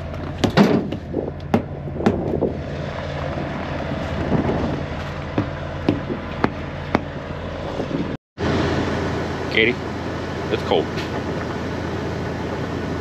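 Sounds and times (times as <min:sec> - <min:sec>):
diesel truck engine idling: 0:00.0 - 0:13.0
sharp knocks and taps: 0:05.4 - 0:07.1.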